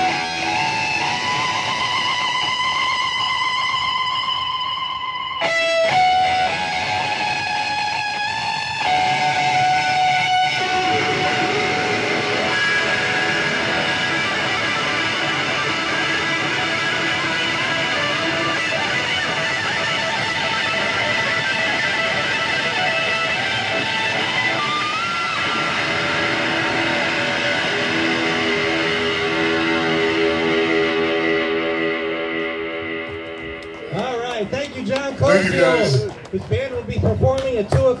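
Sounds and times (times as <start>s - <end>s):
electric guitar solo melody: 0.0s - 36.4s.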